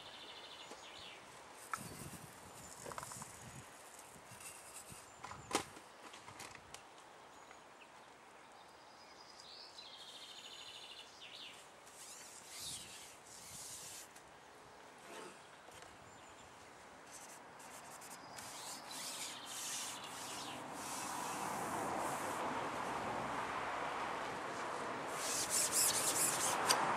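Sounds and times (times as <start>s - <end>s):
fishing pole rubbing and rustling: 1.6s - 5.2s, 11.9s - 14.2s, 15.0s - 15.4s, 17.0s - 22.5s, 25.1s - 26.8s
faint birds chirping: 6.8s - 21.6s
sharp click: 25.8s - 26.8s.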